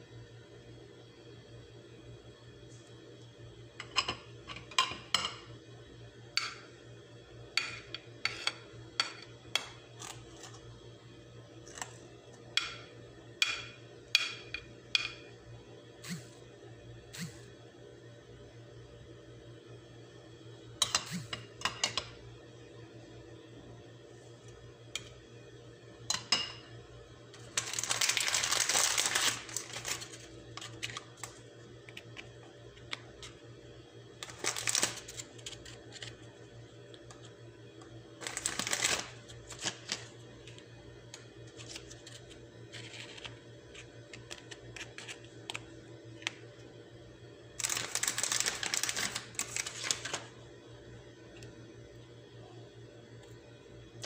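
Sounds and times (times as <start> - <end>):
low steady hum: 0.0 - 54.0
crackers clicking and tapping: 27.4 - 33.4, 37.8 - 46.4, 47.6 - 50.2.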